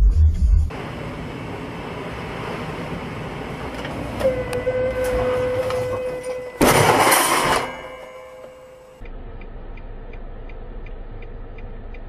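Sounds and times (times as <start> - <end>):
car crash: 6.6 - 8.5.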